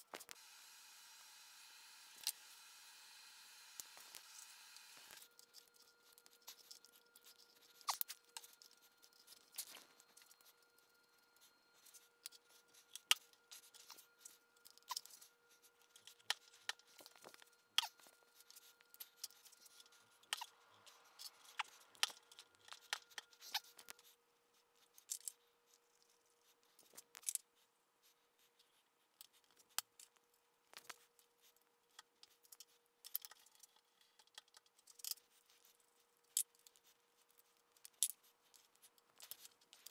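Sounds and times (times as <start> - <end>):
faint steady hum: 0.0 - 39.9.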